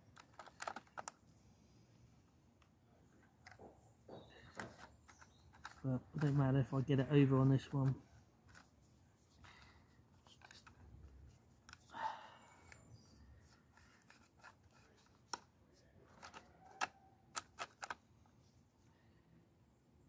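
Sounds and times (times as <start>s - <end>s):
plastic clicks: 0.0s - 1.3s, 2.6s - 6.8s, 7.6s - 11.9s, 12.6s - 18.0s.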